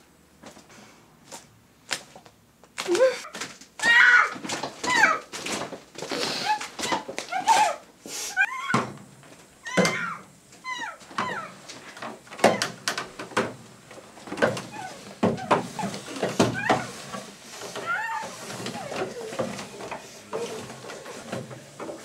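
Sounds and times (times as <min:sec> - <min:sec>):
whimpering cries: 0:06.3 - 0:08.8, 0:09.6 - 0:11.6, 0:14.7 - 0:17.0, 0:17.7 - 0:20.7.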